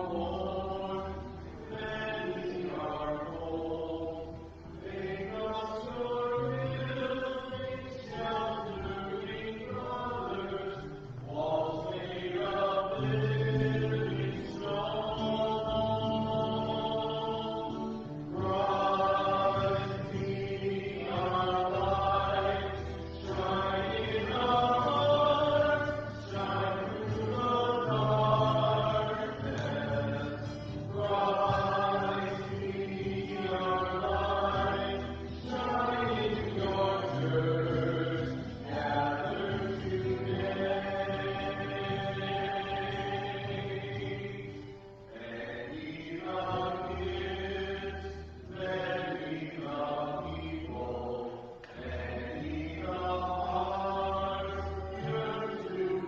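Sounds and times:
slow sung chant: 0.0s - 56.0s.

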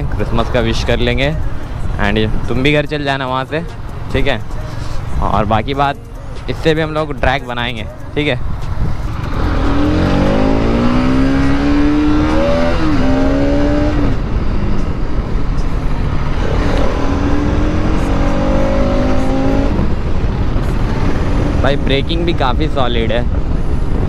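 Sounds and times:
motorcycle engine accelerating: 9.0s - 22.2s.

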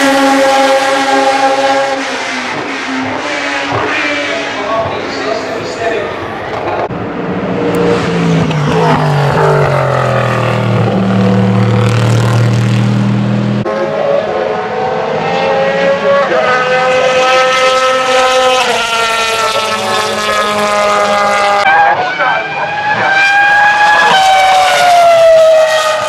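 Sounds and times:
high-pitched race car engine revving: 7.0s - 26.0s.

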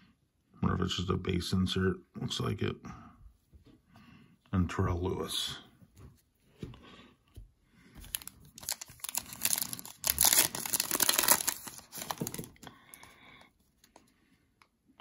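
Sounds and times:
plastic wrapper tearing and crinkling: 8.0s - 12.8s.

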